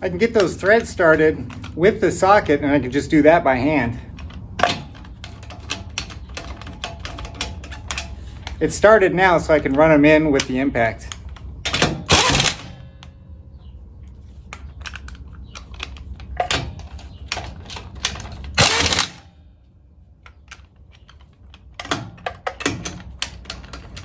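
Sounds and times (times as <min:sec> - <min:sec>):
pneumatic impact wrench hammering: 0:11.7 - 0:12.8, 0:18.1 - 0:19.2.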